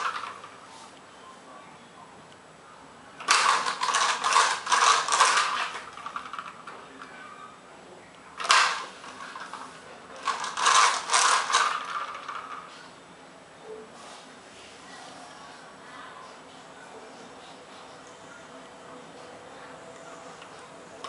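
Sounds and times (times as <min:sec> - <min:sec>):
toy car rattling on tile floor: 0:00.0 - 0:00.6, 0:03.2 - 0:07.1, 0:08.4 - 0:12.8.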